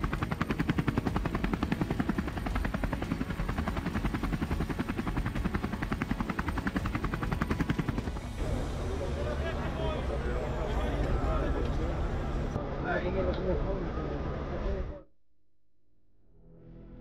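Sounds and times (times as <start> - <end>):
helicopter rotor blades chopping: 0.0 - 11.7.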